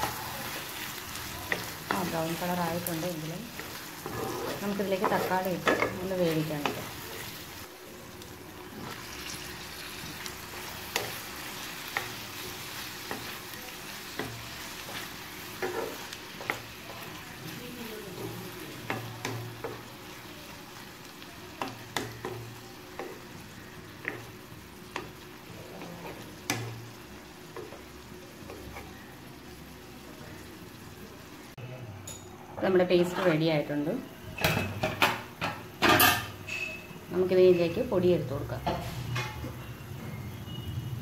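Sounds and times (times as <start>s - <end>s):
onions and tomatoes sizzling in oil: 0.0s - 31.6s, 32.5s - 41.0s
utensil scraping the pan: 3.5s - 6.9s.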